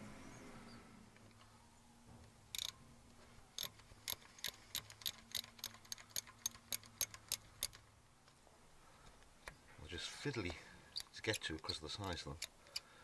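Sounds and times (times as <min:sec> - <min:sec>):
ratcheting spanner clicking: 0:02.5 - 0:02.8, 0:03.6 - 0:07.9, 0:11.0 - 0:12.9.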